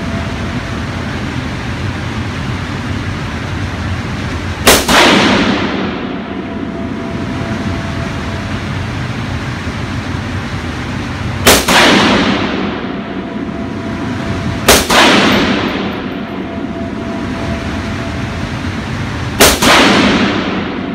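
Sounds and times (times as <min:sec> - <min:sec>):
steady background noise: 0:00.0 - 0:20.9
rifle shots echoing indoors: 0:04.5 - 0:20.9.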